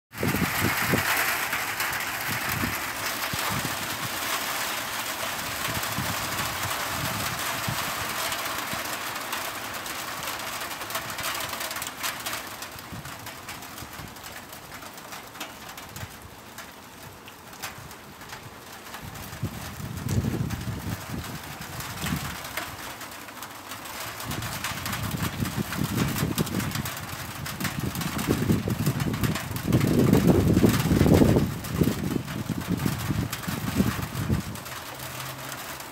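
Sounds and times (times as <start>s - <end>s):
hail pattering: 0.1s - 35.9s.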